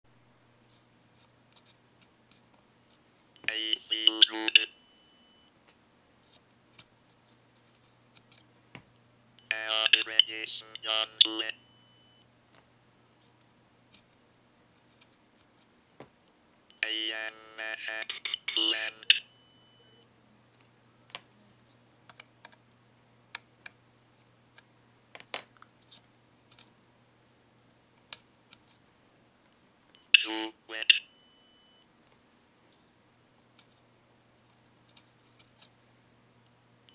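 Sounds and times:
low steady hum: 0.1 - 36.9
robotic text-to-speech voice: 3.4 - 4.7, 9.4 - 11.6, 16.8 - 19.3, 30.1 - 31.1.

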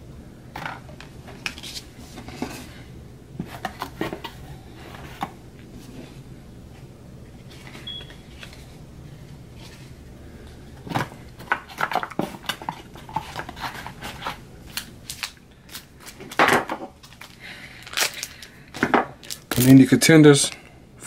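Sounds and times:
low steady hum: 0.0 - 21.0
trading card pack crinkling: 11.7 - 16.4, 17.0 - 18.6, 19.2 - 19.8.

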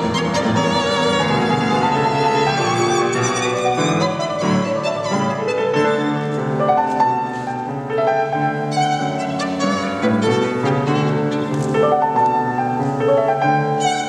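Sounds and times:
violin bowed with vibrato: 0.0 - 7.0, 13.7 - 14.0.

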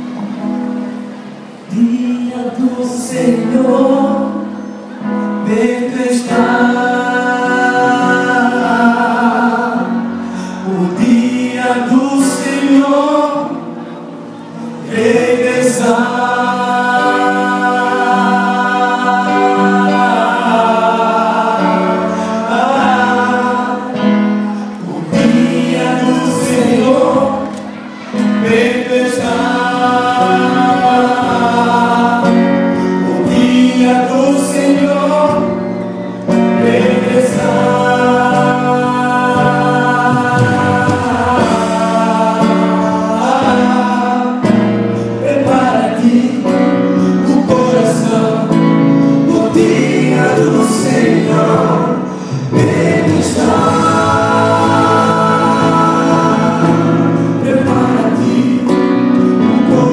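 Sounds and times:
male vocal group singing: 1.7 - 13.9, 14.5 - 59.9.

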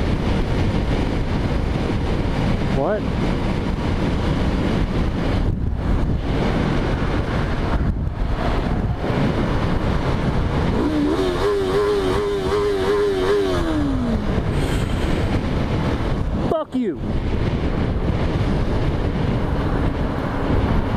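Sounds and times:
wind noise on microphone: 0.0 - 20.9
motorcycle engine revving: 10.0 - 14.6.

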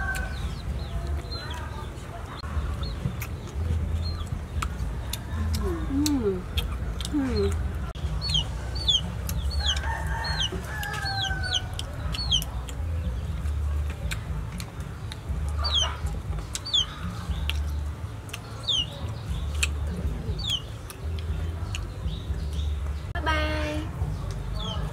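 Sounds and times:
chickens peeping: 0.0 - 23.0
low rumble: 0.0 - 24.9.

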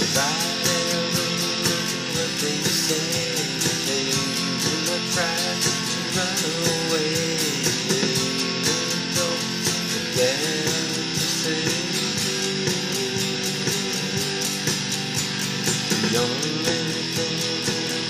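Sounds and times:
electric guitar strumming: 0.0 - 18.0.

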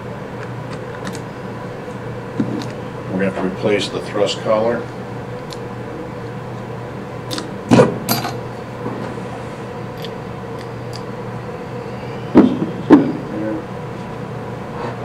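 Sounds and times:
low hum: 4.9 - 15.0
metal parts clinking: 8.1 - 8.4.

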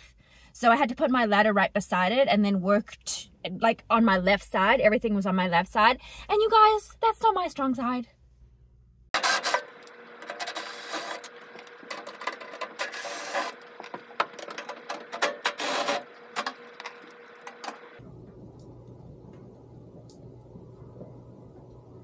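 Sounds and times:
faint steady hum: 0.0 - 22.0
tools scraping metal parts: 9.2 - 17.9.

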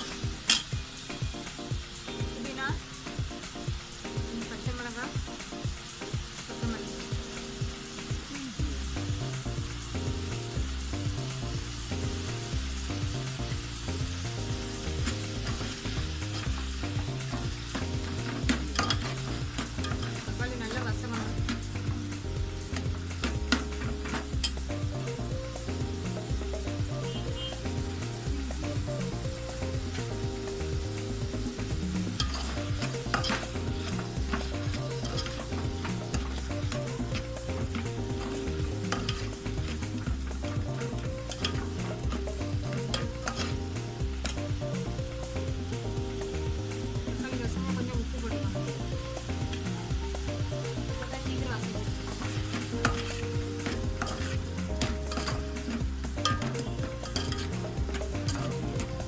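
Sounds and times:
spoon clinking and scraping pot: 0.0 - 0.8, 17.6 - 21.6, 32.1 - 43.6, 52.0 - 59.0
background music with bass: 0.0 - 59.0
sizzling hiss: 0.0 - 59.0.

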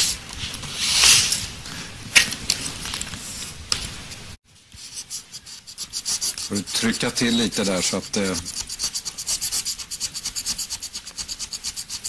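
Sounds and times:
scraping scratch-off ticket: 5.7 - 12.0.

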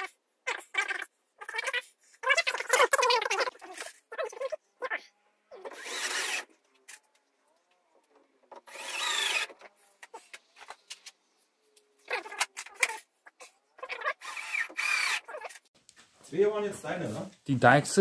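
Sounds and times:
cordless drill driving screws: 5.7 - 6.5, 8.6 - 9.6, 14.2 - 15.3.

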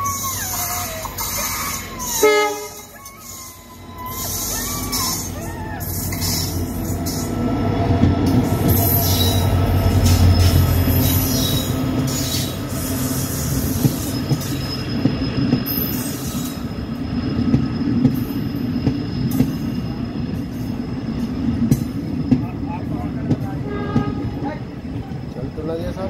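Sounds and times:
thin wheel squeal: 0.0 - 7.3, 8.7 - 19.4
diesel locomotive engine drone: 0.0 - 26.0
train wheels rumbling: 0.0 - 26.0.

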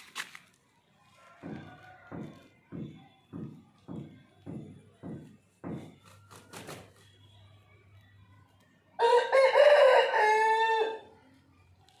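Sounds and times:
rooster flapping wings: 6.0 - 7.0
rooster crowing: 9.0 - 11.1.

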